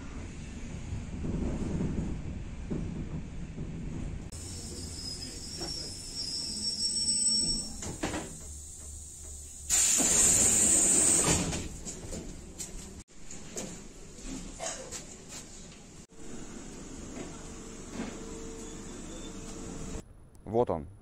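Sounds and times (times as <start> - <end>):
train rumbling: 0.0 - 13.0
pneumatic doors hissing open: 4.4 - 11.7.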